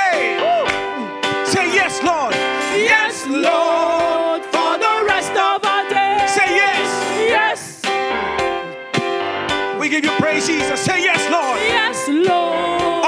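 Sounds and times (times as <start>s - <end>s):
group singing gospel song: 0.0s - 8.6s, 10.4s - 13.0s
keyboard accompaniment: 0.0s - 13.0s.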